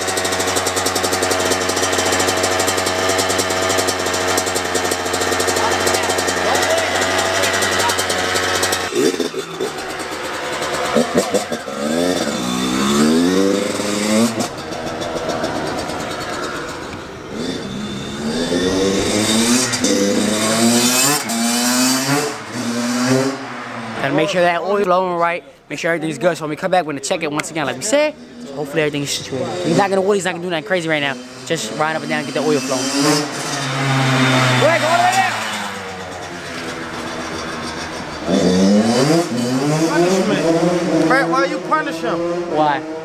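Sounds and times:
dirt bike engine idling: 0:00.0 - 0:20.7.

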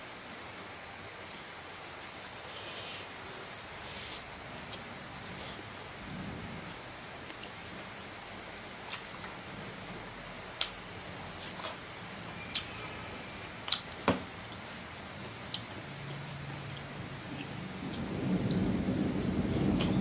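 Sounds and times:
background hiss: 0:00.0 - 0:20.0
person chewing with wet smacks: 0:08.8 - 0:09.4, 0:10.6 - 0:11.8, 0:13.6 - 0:14.0, 0:15.5 - 0:18.7.

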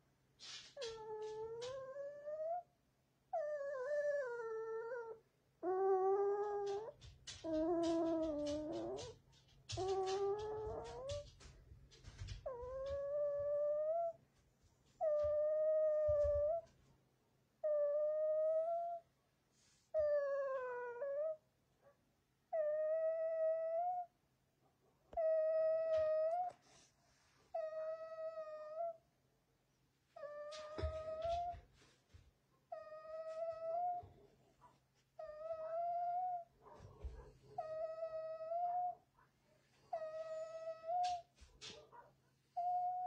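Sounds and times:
puppy whining: 0:00.5 - 0:02.7, 0:03.3 - 0:14.2, 0:14.9 - 0:16.8, 0:17.6 - 0:19.1, 0:19.9 - 0:21.4, 0:22.5 - 0:24.2, 0:25.1 - 0:26.6, 0:27.5 - 0:29.0, 0:30.1 - 0:31.7, 0:32.7 - 0:39.1, 0:39.8 - 0:43.0.

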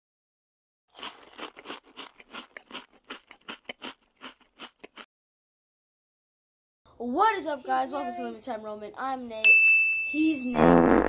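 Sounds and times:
crunchy chewing: 0:00.9 - 0:05.1.

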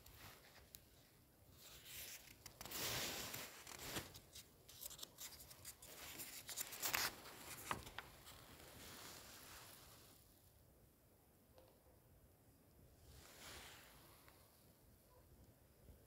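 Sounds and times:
paper pages rustling: 0:01.6 - 0:09.2.

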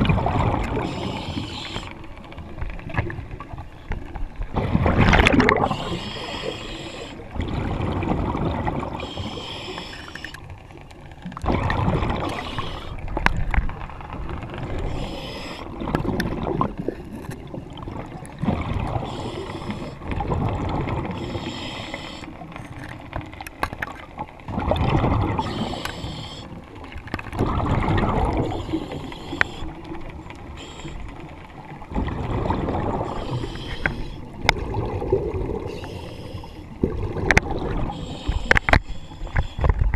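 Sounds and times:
rush of exhaled bubbles underwater: 0:00.0 - 0:01.4, 0:04.4 - 0:06.6, 0:07.2 - 0:09.4, 0:11.2 - 0:21.5, 0:24.2 - 0:30.3, 0:31.0 - 0:36.1, 0:36.7 - 0:38.5.

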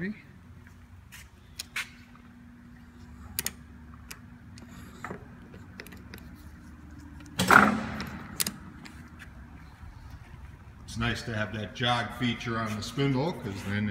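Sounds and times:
faint steady hum: 0:00.0 - 0:13.9
sharp metallic clicks: 0:07.2 - 0:09.0.

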